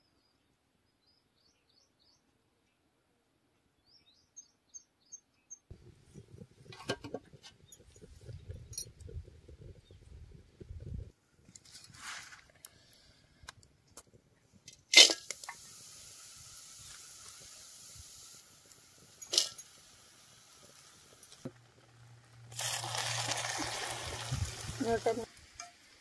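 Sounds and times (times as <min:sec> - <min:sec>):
hot oil sizzling: 0:14.6 - 0:26.0
metal utensils clinking: 0:19.2 - 0:19.7.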